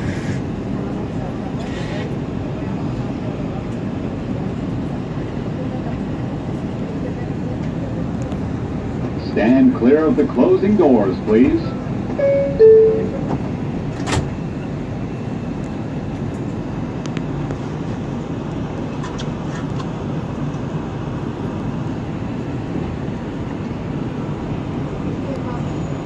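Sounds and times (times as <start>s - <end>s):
train rumble and hiss: 0.0s - 26.0s
train doors closing knock: 12.1s - 14.4s
two-tone door chime: 12.2s - 13.2s.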